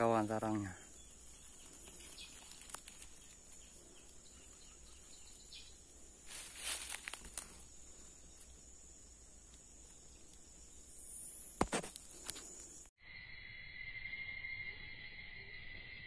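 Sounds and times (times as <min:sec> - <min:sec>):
leaves and twigs rustling: 0:00.0 - 0:10.9
high insect drone: 0:00.0 - 0:16.0
twigs snapping: 0:01.4 - 0:04.2, 0:06.3 - 0:07.6.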